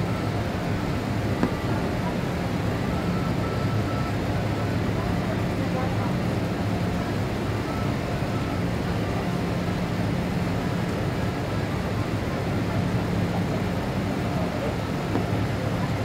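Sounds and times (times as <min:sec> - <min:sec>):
airflow rush in cabin: 0:08.4 - 0:16.0.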